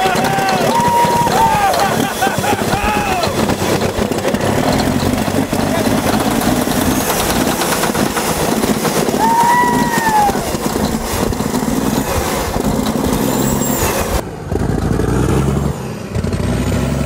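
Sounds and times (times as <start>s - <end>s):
rising and falling whistle: 0.0s - 3.1s, 9.0s - 11.0s
bulldozer diesel engine: 0.0s - 17.0s.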